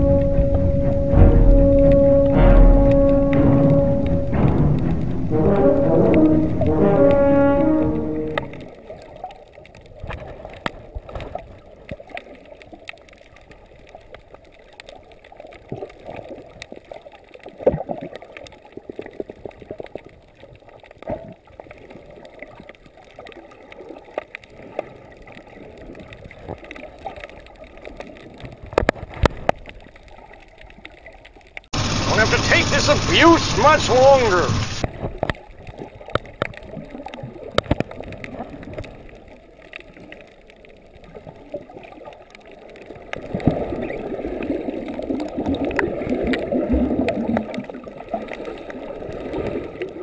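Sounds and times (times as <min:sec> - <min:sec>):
sharp knocks: 0:00.0 - 0:08.5
music: 0:00.0 - 0:08.7
muffled underwater noise: 0:00.0 - 0:09.0, 0:31.8 - 0:35.3
underwater clicks and crackles: 0:00.0 - 0:50.0.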